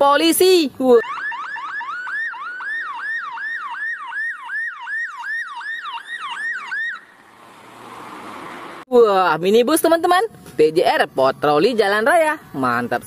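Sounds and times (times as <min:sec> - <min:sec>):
police siren yelping: 0:00.9 - 0:07.4.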